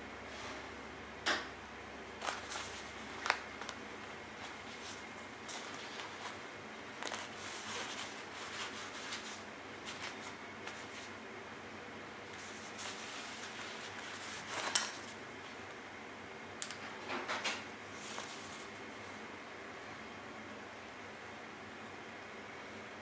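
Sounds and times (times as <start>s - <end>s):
faint fabric rustle: 2.2s - 11.2s, 12.3s - 15.7s, 17.9s - 18.9s.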